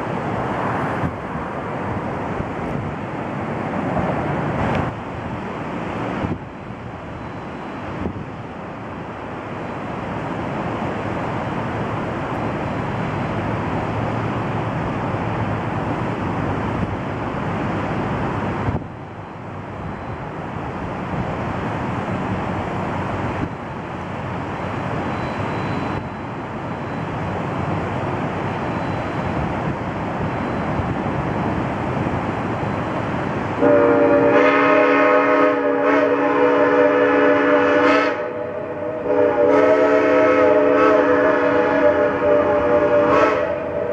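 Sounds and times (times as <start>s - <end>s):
steady rushing noise: 0.0s - 34.3s, 40.4s - 43.9s
steam locomotive chime whistle: 25.1s - 27.1s, 28.7s - 29.3s, 33.6s - 43.9s.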